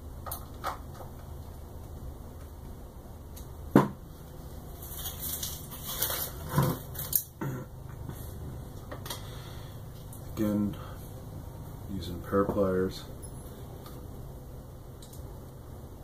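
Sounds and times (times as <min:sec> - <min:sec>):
steady low hum: 0:00.0 - 0:16.0
packing paper crinkling: 0:04.7 - 0:07.3.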